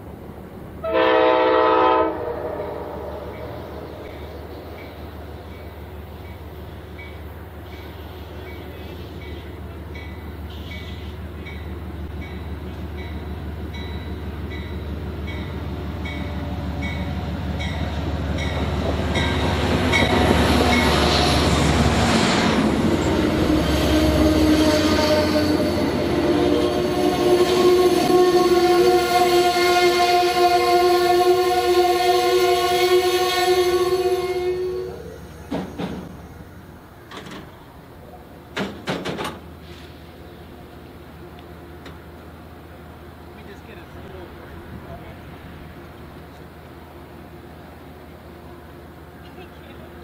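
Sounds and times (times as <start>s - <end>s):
diesel train approaching: 0.0s - 50.0s.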